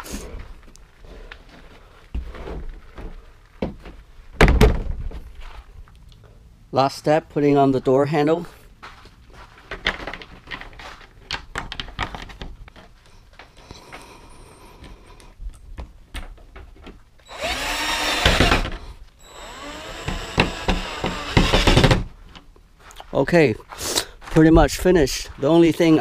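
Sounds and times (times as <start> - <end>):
cordless drill driving screws: 17.2 - 22.1.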